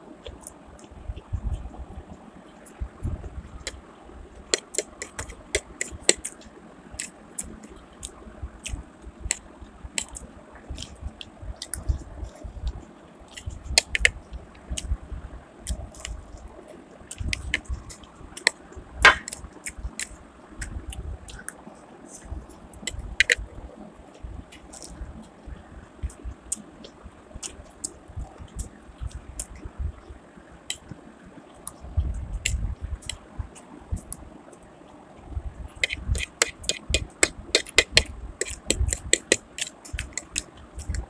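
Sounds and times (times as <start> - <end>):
person chewing and slurping noodles: 4.4 - 6.4, 10.0 - 10.2, 35.6 - 41.0
fork tapping: 4.5 - 6.3, 35.8 - 41.0
mouth clicks: 17.1 - 23.4, 35.8 - 41.0.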